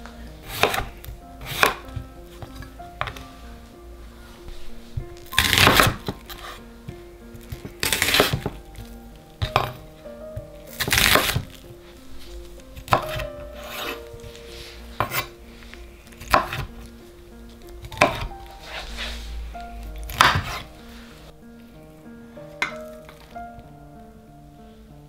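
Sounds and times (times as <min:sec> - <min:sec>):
soft background music: 0:00.0 - 0:25.0
knife slicing onion on board: 0:00.5 - 0:01.8, 0:12.9 - 0:14.0.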